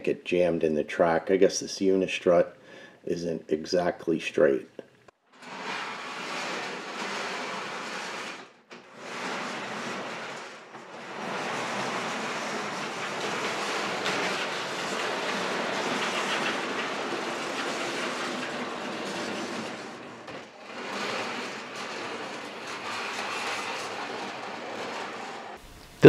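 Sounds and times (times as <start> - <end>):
trolley rolling on steel channel: 5.3 - 26.0.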